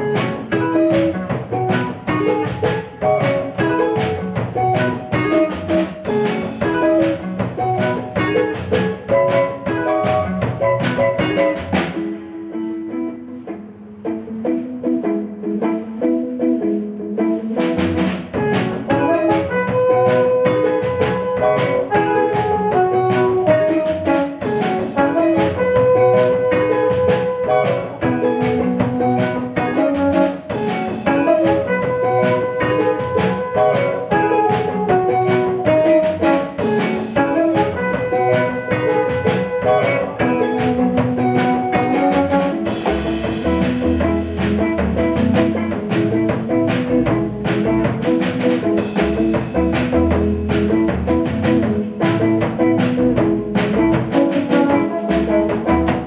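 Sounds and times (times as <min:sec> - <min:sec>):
drums keeping steady pulse: 0:00.0 - 0:12.3, 0:17.4 - 0:56.0
jazz band playing: 0:00.0 - 0:56.0
low bass line: 0:42.7 - 0:48.0.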